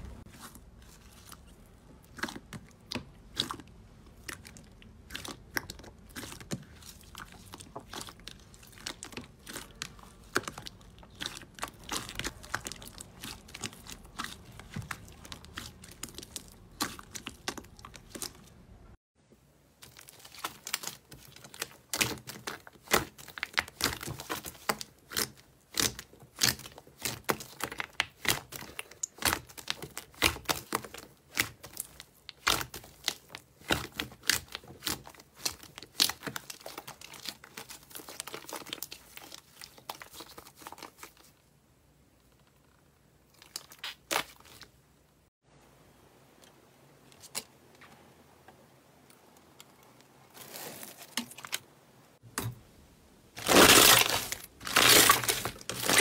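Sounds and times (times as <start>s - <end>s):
slime crackling and popping: 0.9s - 18.6s, 19.8s - 41.0s, 53.4s - 56.0s.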